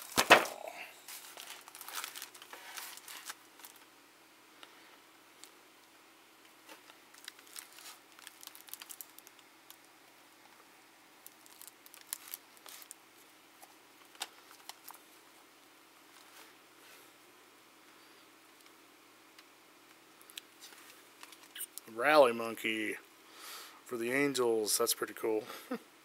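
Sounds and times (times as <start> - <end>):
cards being shuffled: 0.0 - 3.8.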